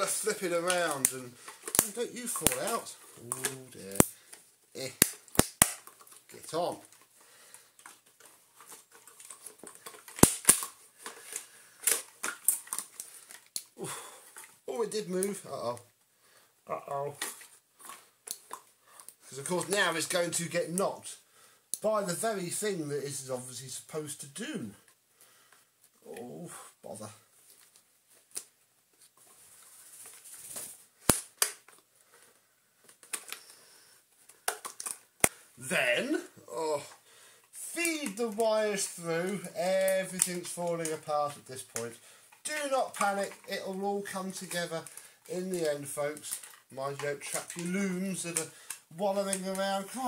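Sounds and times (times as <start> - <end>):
plastic parts clicking and clacking: 0.0 - 15.9, 17.1 - 20.8, 30.0 - 33.6, 34.2 - 35.4, 36.0 - 50.0
soft rustle: 24.7 - 31.1.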